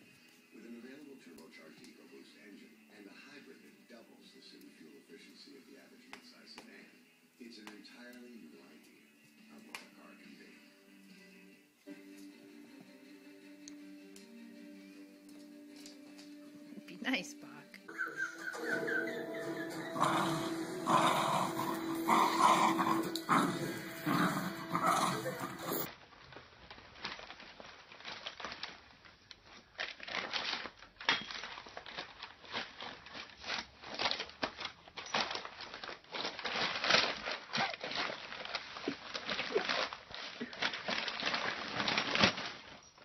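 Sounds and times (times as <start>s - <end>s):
music with voices: 0.0s - 25.9s
plastic bag crinkling: 17.9s - 43.0s.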